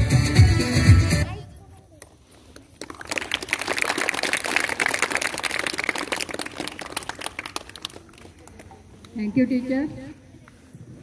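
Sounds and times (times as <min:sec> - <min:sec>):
children applauding: 0:02.8 - 0:08.7.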